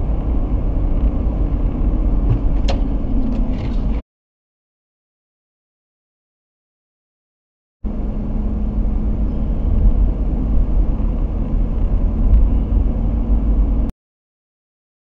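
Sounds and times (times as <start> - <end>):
car interior highway rumble: 0.0 - 4.0, 7.9 - 13.9
steady low hum: 7.9 - 13.9.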